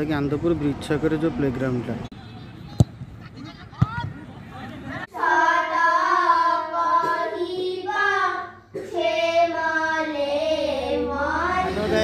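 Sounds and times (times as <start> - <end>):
child singing a prayer chant: 5.1 - 12.0.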